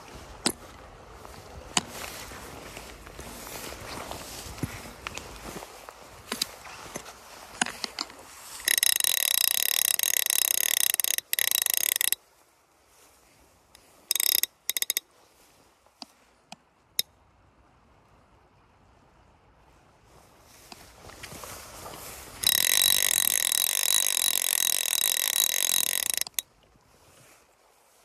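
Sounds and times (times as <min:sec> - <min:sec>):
fly reel ratchet rattling: 0:07.6 - 0:12.2, 0:14.0 - 0:15.0, 0:22.4 - 0:26.5.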